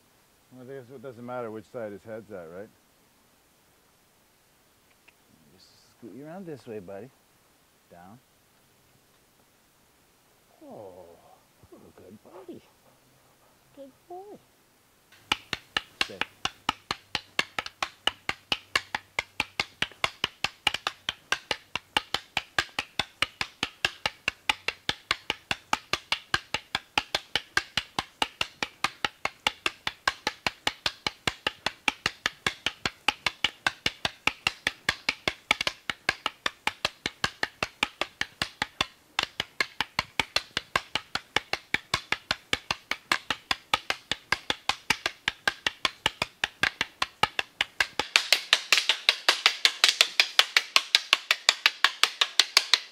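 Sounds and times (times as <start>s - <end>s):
wooden sticks clacking: 15.1s - 52.9s.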